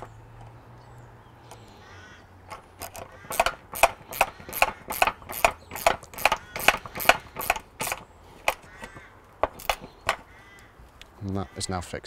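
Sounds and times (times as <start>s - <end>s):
hand ratchet clicking: 2.5s - 10.2s.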